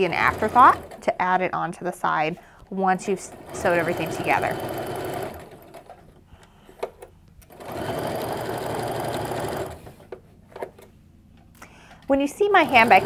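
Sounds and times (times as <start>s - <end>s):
sewing machine stitching: 0.0s - 1.2s, 3.0s - 6.0s, 7.5s - 10.1s, 12.6s - 13.0s.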